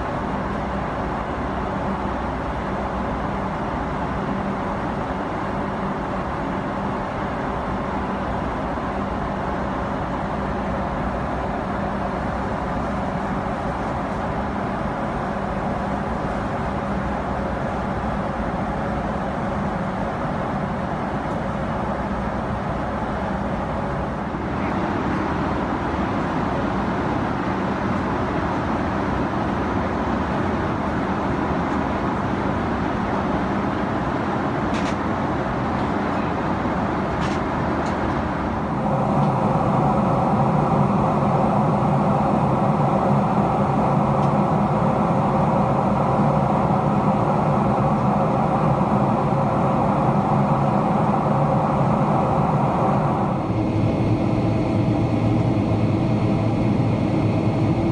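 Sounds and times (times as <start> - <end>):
air rushing along fuselage: 0.0 - 57.9
jet engines humming: 0.0 - 57.9
low steady drone: 35.2 - 57.9.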